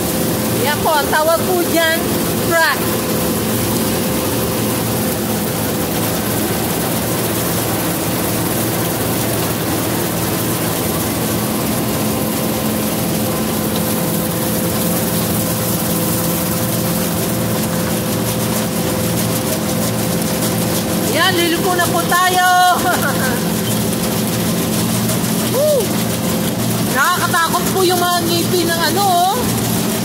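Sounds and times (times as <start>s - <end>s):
combine harvester drone: 0.0s - 30.0s.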